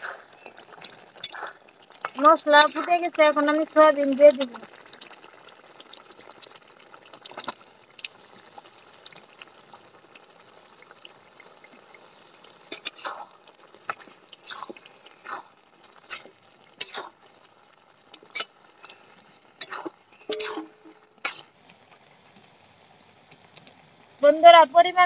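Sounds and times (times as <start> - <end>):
masala simmering in a pan: 0.0 - 25.0
spatula scraping and knocking a pan: 19.6 - 21.5.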